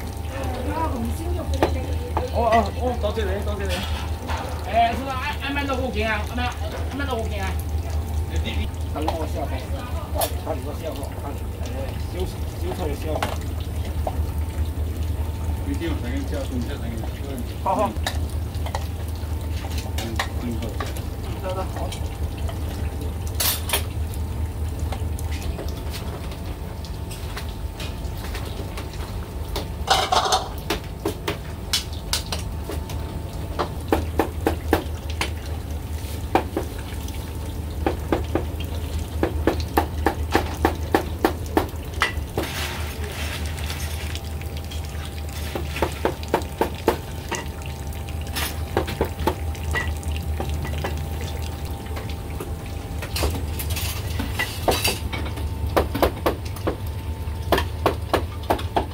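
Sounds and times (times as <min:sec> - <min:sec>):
steady low hum: 0:00.0 - 0:58.0
ladle and bowls clinking: 0:29.8 - 0:30.6.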